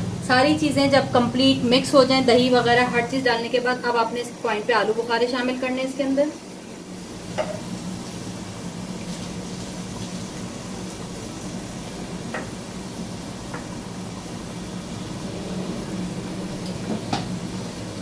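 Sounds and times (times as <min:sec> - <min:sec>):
curry bubbling in pot: 0:06.6 - 0:18.0.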